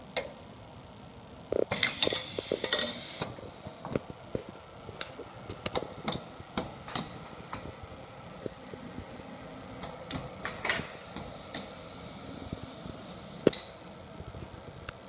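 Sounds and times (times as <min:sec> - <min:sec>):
steady background hum: 0:00.0 - 0:15.0
pneumatic clicks and knocks: 0:01.7 - 0:03.3, 0:05.7 - 0:07.6, 0:09.8 - 0:11.8.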